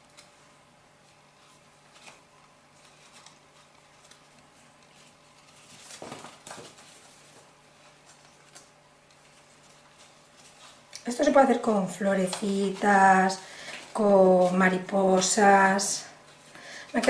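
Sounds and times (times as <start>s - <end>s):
card being folded: 0.0s - 11.0s
paper rustling: 0.0s - 15.3s.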